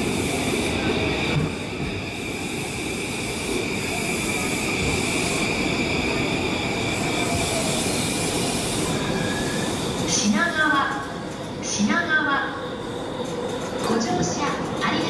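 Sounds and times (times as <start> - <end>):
high-pitched train whine: 0.0 - 10.6
train wheels rumbling on rail: 0.0 - 15.0.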